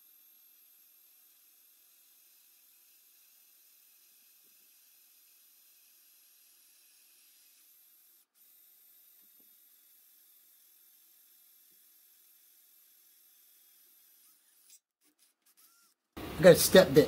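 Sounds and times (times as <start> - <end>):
faint steady hiss: 16.2 - 17.0.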